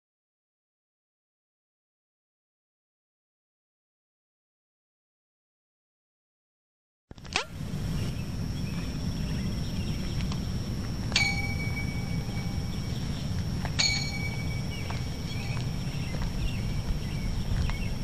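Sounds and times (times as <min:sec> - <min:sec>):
faint steady high tone: 0:11.0 - 0:18.0
metallic dings: 0:11.1 - 0:12.8, 0:13.8 - 0:15.7.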